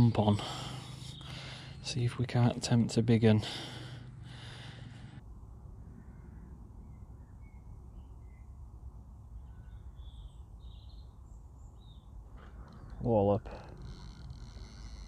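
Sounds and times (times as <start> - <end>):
small birds chirping: 0.0 - 2.5, 6.0 - 13.5
low background rumble: 0.0 - 15.0.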